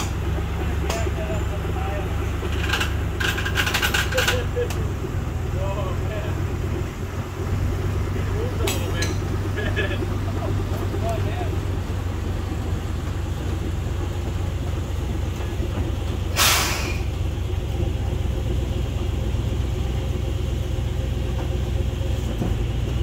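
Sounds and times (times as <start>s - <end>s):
locomotive engine running: 0.0s - 23.0s
short loud hiss: 16.3s - 17.1s.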